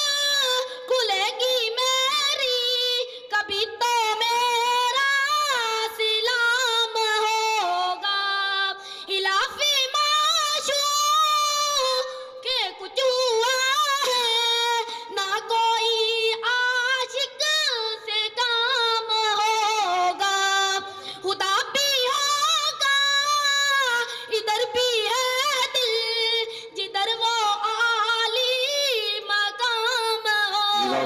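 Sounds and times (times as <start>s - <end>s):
solo voice singing unaccompanied: 30.5s - 31.0s.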